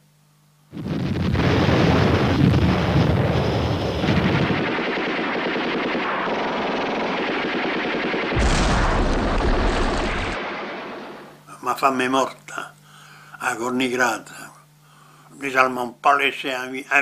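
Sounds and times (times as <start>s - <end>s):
machine-gun fire: 0.7s - 11.4s.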